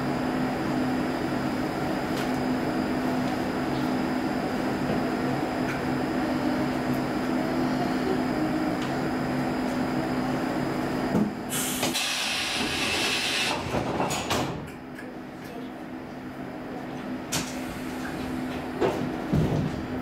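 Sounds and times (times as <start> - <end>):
electric train equipment humming: 0.0 - 14.2.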